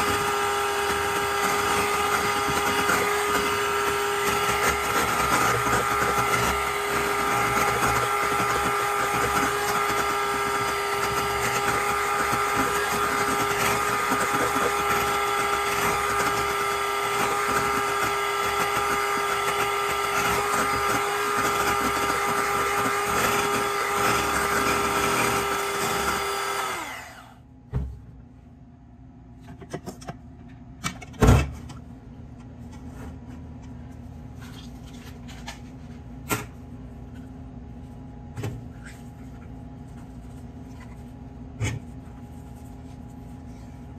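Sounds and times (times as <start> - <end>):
electric hand mixer whining: 0.0 - 27.4.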